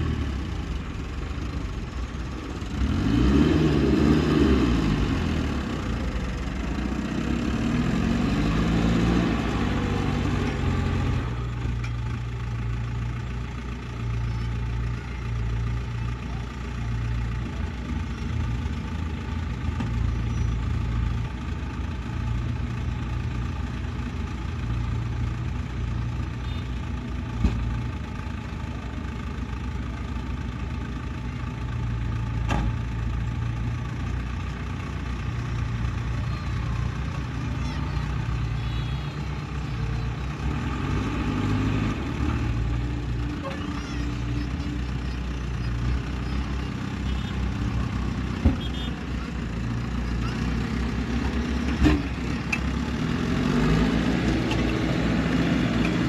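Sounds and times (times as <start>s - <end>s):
diesel truck engine revving: 0.0s - 56.0s.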